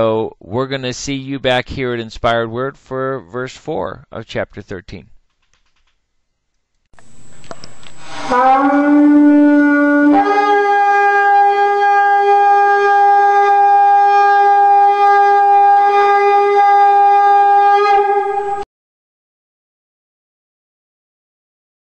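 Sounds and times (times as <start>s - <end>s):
ram's horn blown: 7.4s - 18.7s.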